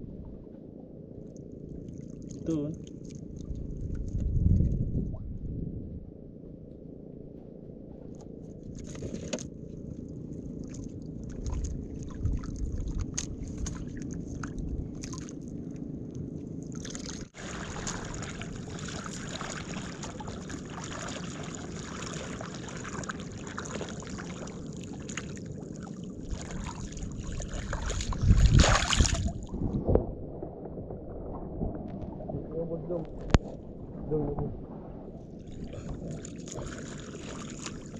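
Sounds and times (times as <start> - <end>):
water lapping against boat hull: 1.2 - 5.3, 7.9 - 37.9
hand splashing in water: 26.4 - 29.4.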